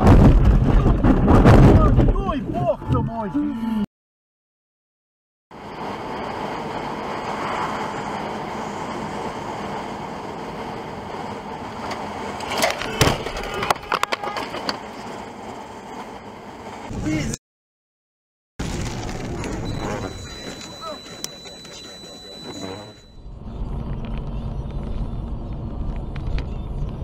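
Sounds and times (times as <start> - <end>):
car road and engine noise: 5.5 - 17.3, 18.6 - 27.0.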